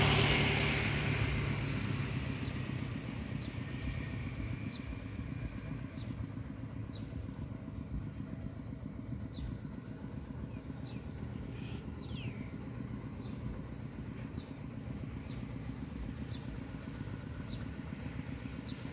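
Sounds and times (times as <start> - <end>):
distant engine rumble: 0.0 - 18.9
bird chirps: 10.4 - 13.5.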